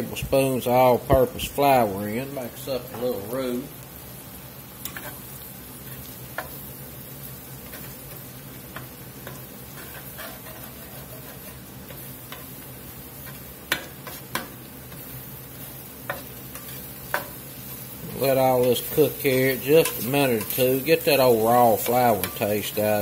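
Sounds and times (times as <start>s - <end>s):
low steady sizzle: 0.0s - 23.0s
metal spatula scraping a pan: 4.8s - 6.7s, 7.6s - 22.8s.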